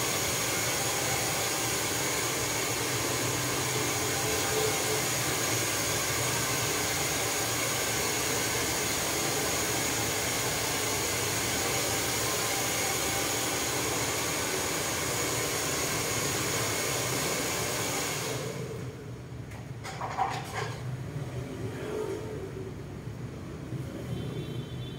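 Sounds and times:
hair dryer blowing: 0.0s - 19.0s.

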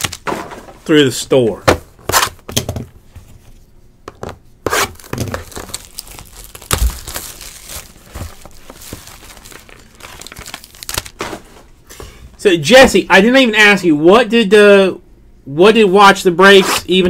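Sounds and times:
plastic shrink wrap tearing: 4.7s - 11.2s.

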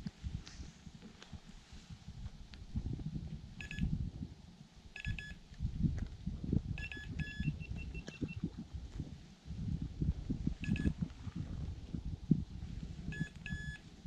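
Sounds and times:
short electronic beeps: 3.6s - 3.9s, 5.0s - 5.4s, 6.8s - 8.4s, 10.6s - 11.0s, 13.1s - 13.8s.

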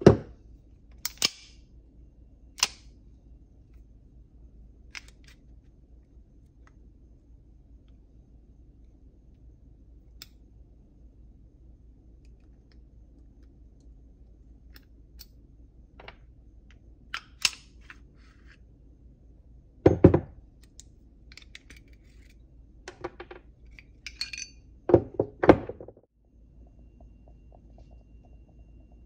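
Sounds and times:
parts knocking on wooden bench: 0.0s - 0.3s, 19.9s - 20.4s, 22.9s - 23.4s, 24.9s - 26.0s
metal gun parts clicking: 1.0s - 1.5s, 20.7s - 22.3s, 22.9s - 24.6s.

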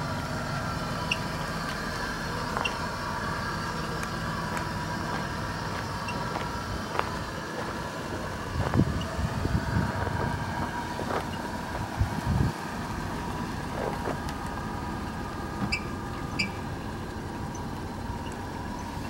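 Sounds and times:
machinery hum: 0.0s - 19.0s
footsteps on gravel: 4.0s - 11.8s.

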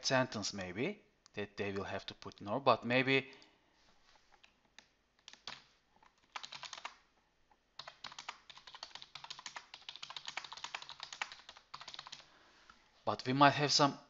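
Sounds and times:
typing on keyboard: 5.2s - 7.0s, 7.8s - 12.3s.

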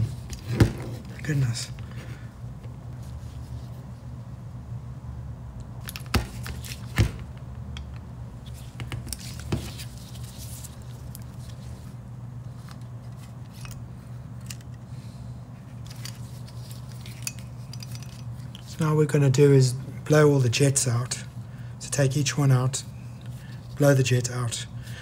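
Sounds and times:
metal parts clicking on workbench: 15.8s - 18.6s.

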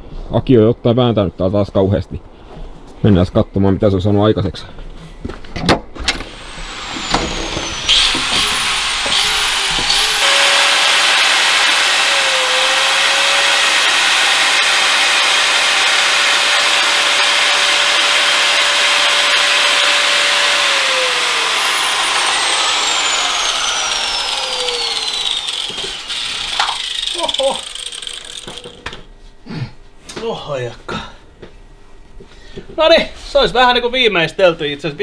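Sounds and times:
electric angle grinder grinding: 6.2s - 28.9s.

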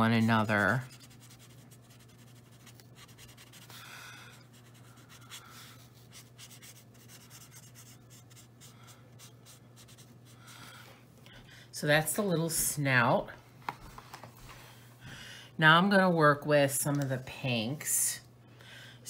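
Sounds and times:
marker scratching on paper: 0.0s - 3.8s, 4.4s - 10.4s.

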